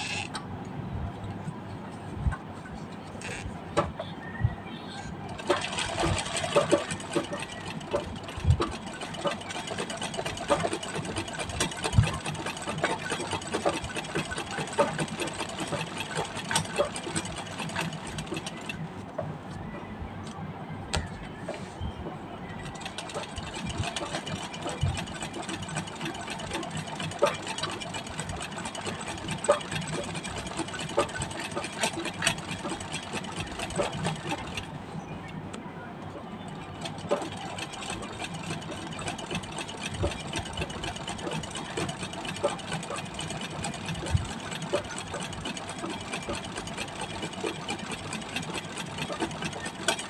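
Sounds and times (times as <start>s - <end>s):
treadle sewing machine stitching: 5.3s - 18.8s, 22.6s - 34.7s, 36.5s - 50.0s.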